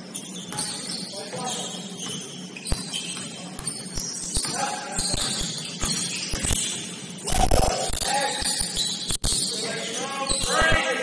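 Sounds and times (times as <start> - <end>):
sneakers squeaking on floor: 0.0 - 7.2, 8.2 - 10.8
basketball bouncing: 0.5 - 6.9.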